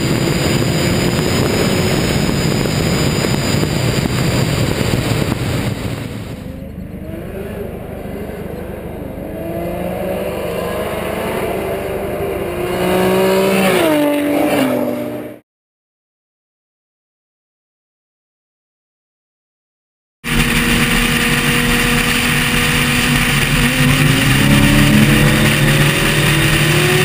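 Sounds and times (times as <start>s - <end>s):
wind noise: 0.0s - 7.5s, 20.3s - 27.0s
car engine at full throttle: 0.0s - 15.4s, 20.2s - 27.0s
racing car accelerating past: 6.3s - 15.4s, 20.3s - 27.0s.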